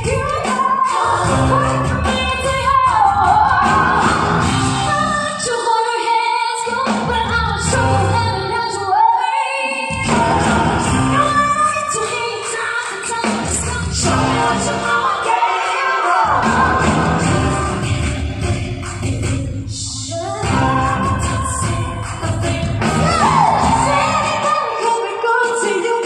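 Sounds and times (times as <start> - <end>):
drums: 0.0 - 26.0
female vocal group singing: 0.0 - 26.0
bass guitar: 1.3 - 2.2, 3.6 - 5.2, 7.6 - 8.4, 10.0 - 11.6, 14.0 - 14.8, 16.4 - 18.2, 20.4 - 21.8, 22.4 - 24.4.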